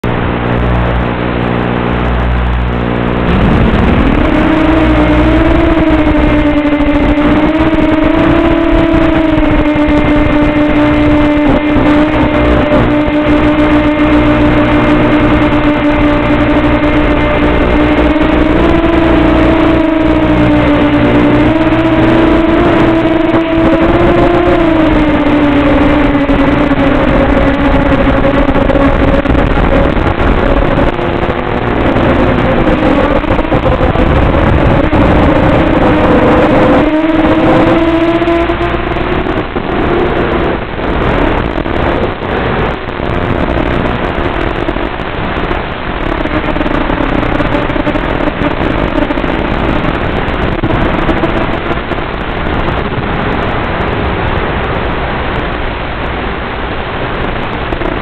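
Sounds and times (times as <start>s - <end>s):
model aircraft motor whine: 0.1s - 42.1s.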